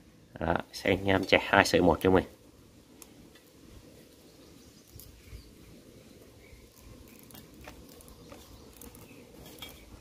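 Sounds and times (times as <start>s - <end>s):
wire cable clicking and scratching: 6.7s - 10.0s.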